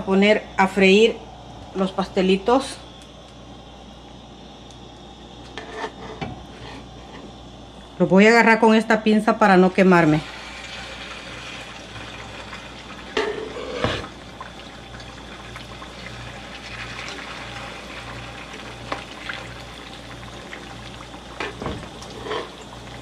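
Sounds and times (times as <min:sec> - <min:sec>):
oil sizzling in a pan: 0:10.0 - 0:23.0.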